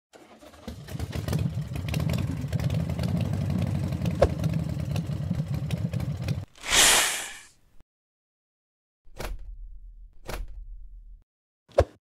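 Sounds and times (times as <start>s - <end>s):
truck engine starting and idling: 0.2s - 6.2s.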